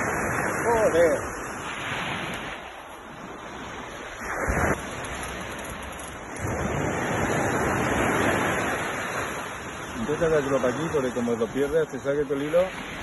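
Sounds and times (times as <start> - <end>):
wind buffeting microphone: 0.0 - 11.0
surf washing on shore: 0.0 - 13.0.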